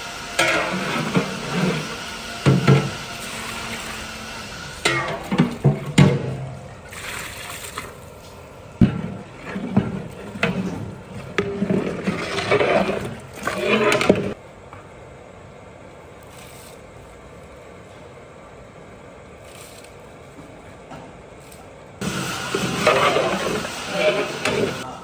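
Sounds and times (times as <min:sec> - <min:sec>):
metal ladle scraping pot: 0:00.4 - 0:03.8, 0:09.1 - 0:14.4, 0:22.1 - 0:24.8
low background noise: 0:04.8 - 0:22.0.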